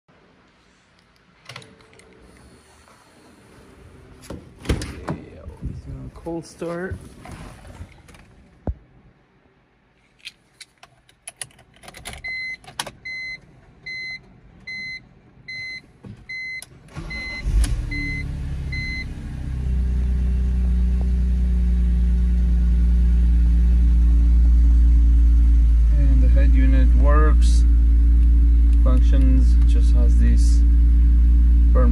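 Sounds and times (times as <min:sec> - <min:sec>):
car engine cranking and idling: 0:16.2 - 0:31.9.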